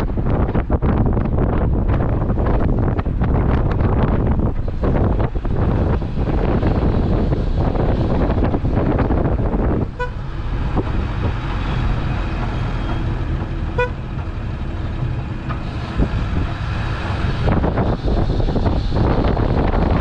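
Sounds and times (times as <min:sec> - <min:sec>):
wind rumble on microphone: 0:00.0 - 0:20.0
vehicle horn toots: 0:09.9 - 0:10.2, 0:13.7 - 0:14.0.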